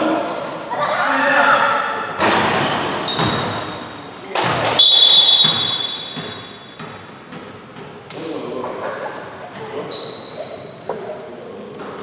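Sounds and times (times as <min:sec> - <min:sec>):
basketball thuds in a gym: 0:02.2 - 0:08.3
referee's whistle blast: 0:04.8 - 0:06.6.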